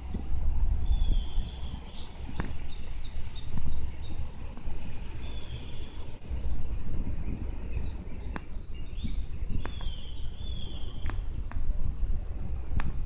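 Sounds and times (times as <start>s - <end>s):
wind rumble on microphone: 0.0s - 13.0s
bird chirping: 0.8s - 11.4s
sharp clicks: 6.9s - 11.8s.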